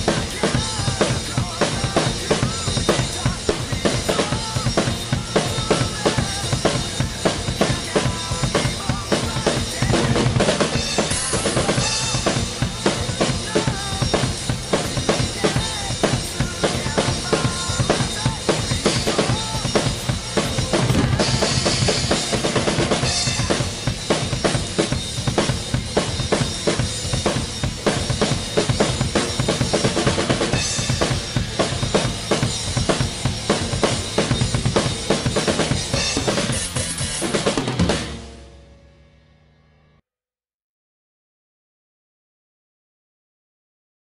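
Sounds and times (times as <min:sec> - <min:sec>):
rock song with singing: 0:00.0 - 0:38.4
drum kit playing rock beat: 0:00.0 - 0:38.8.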